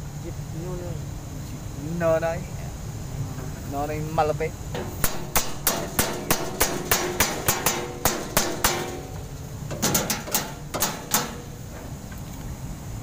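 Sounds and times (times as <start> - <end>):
hand tool tapping: 4.8 - 11.4.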